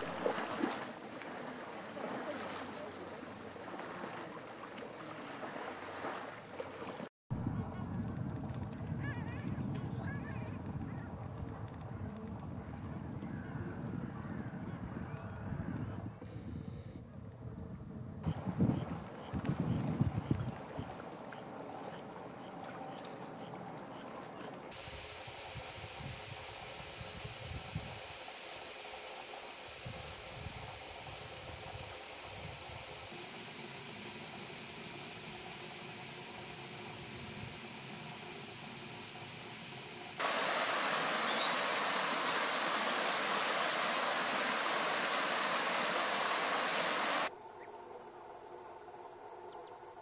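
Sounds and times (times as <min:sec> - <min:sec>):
insect chorus with pulsing hiss: 0:18.3 - 0:50.0
high-pitched insect chorus: 0:24.7 - 0:50.0.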